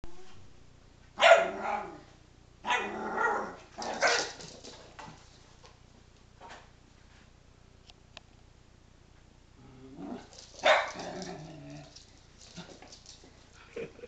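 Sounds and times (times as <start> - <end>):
small dogs barking: 1.2 - 2.0, 2.6 - 4.4, 10.6 - 11.7
quiet shuffling: 10.2 - 14.0.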